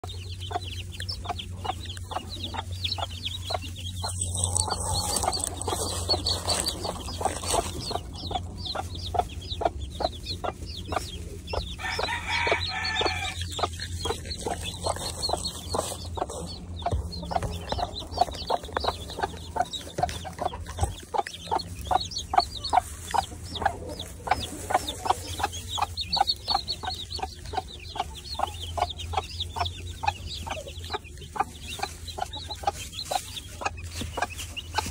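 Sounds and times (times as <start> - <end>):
chicks peeping: 0.0 - 34.9
hen clucking: 0.0 - 34.9.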